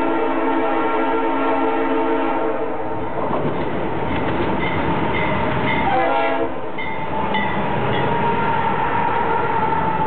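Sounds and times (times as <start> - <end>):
locomotive air horn: 0.0 - 2.9, 5.8 - 6.6, 8.0 - 10.0.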